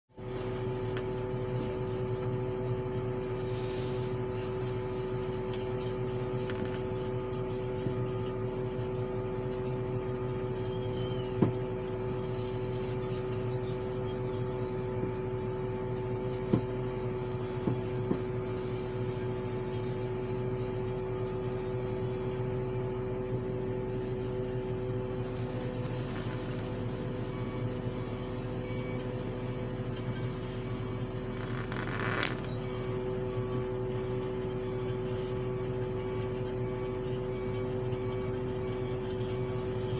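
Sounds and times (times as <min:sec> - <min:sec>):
steady whine: 0:00.1 - 0:39.9
heavy diesel engines running: 0:24.5 - 0:33.7.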